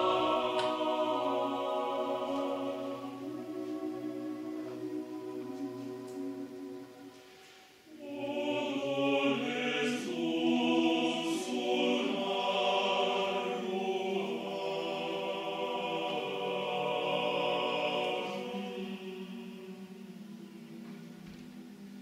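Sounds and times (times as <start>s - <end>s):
mixed choir singing unaccompanied: 0.0s - 22.0s.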